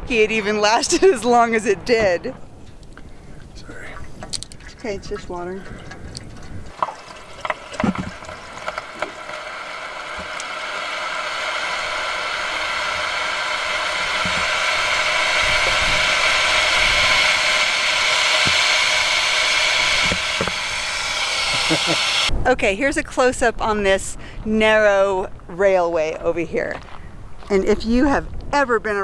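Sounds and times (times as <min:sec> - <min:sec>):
water pouring from plastic jug: 0:04.0 - 0:15.1.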